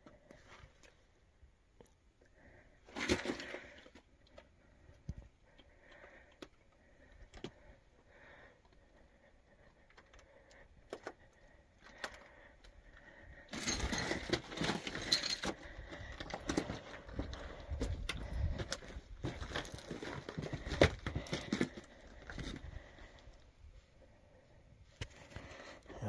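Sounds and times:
footsteps on rock and gravel: 13.8s - 23.1s.

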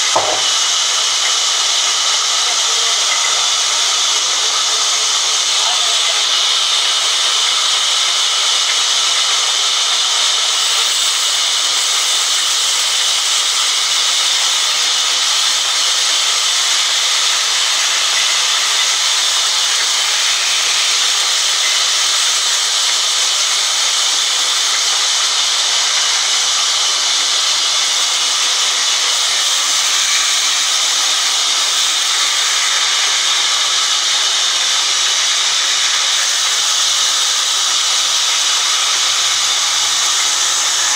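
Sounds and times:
band saw cutting log: 0.0s - 40.9s.

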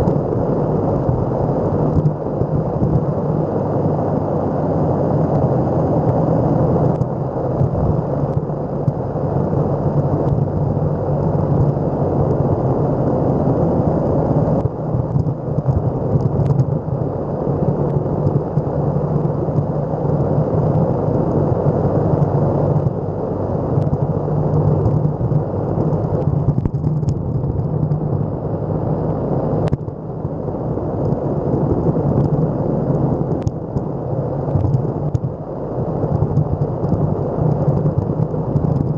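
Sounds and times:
skateboard wheels rolling on asphalt: 0.0s - 38.9s
wind noise on microphone: 0.0s - 38.9s.

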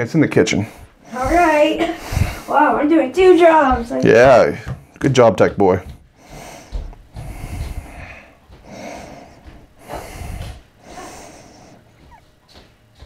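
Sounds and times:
heavy breathing: 0.5s - 2.9s, 5.8s - 12.3s.

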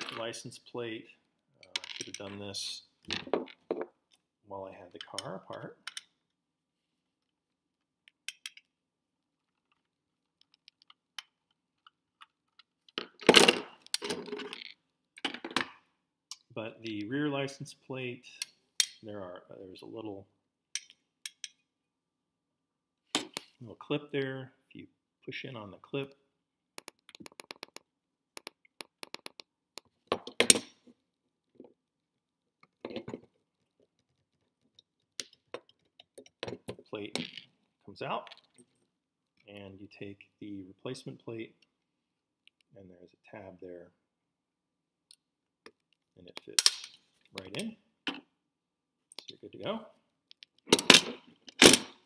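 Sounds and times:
metal and plastic parts clattering: 12.5s - 15.8s, 50.7s - 51.9s
sharp plastic crack: 50.6s - 52.0s.

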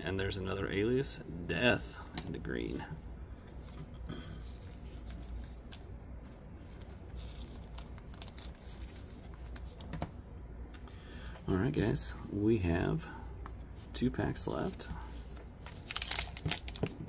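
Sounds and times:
low steady hum: 0.0s - 17.0s
cards rustling and clicking: 4.4s - 10.1s, 14.6s - 17.0s.

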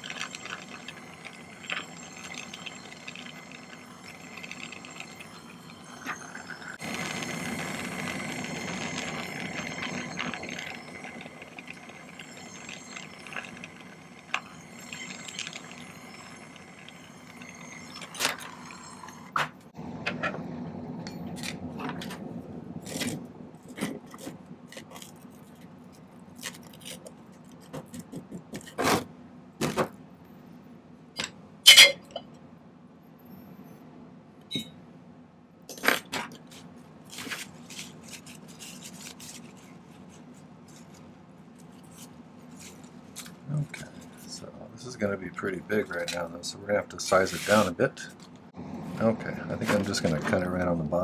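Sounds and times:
soldering torch hissing: 0.0s - 19.4s.

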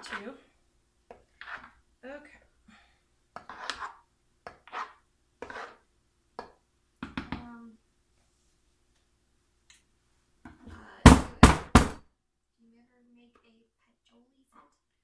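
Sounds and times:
spoon scraping soap batter: 0.0s - 1.9s, 3.3s - 6.6s.

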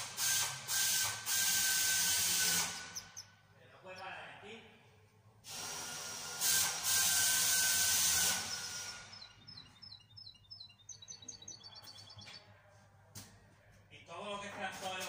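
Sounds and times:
caged bird chirping: 1.5s - 4.2s, 7.0s - 12.7s.

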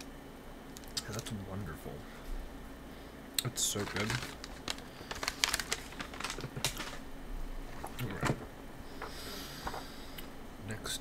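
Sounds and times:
snack packaging crinkling: 3.5s - 7.1s.

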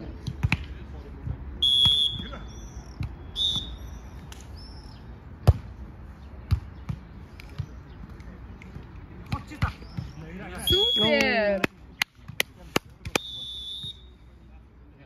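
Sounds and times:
shrill whistle-like tones: 1.6s - 4.0s, 10.6s - 11.2s, 13.2s - 14.2s.

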